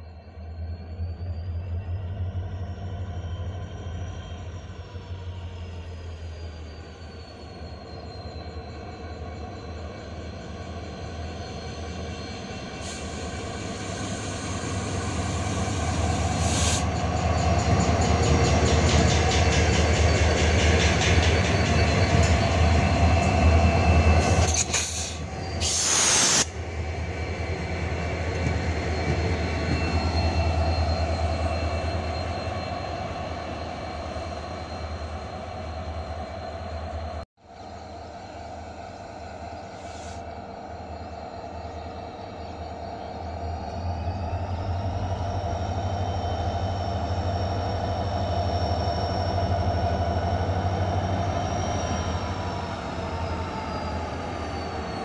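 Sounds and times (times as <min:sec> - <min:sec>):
diesel locomotive engine drone: 0:00.0 - 0:55.0
train wheel and rail noise: 0:00.0 - 0:55.0
loud hiss burst: 0:24.6 - 0:26.5.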